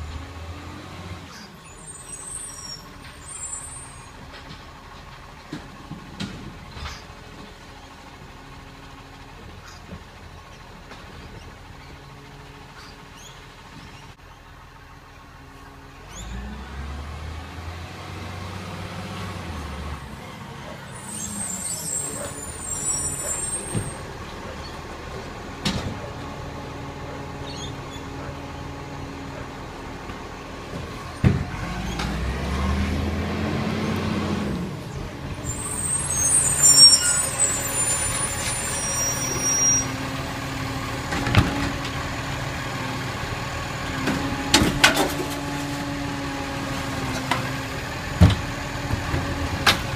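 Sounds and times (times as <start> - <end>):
garbage truck diesel engine revving: 15.2 - 49.9.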